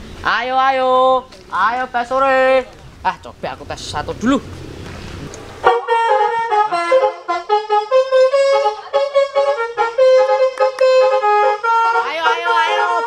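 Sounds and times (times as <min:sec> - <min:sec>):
multi-tone horn playing tune: 0:05.6 - 0:13.0.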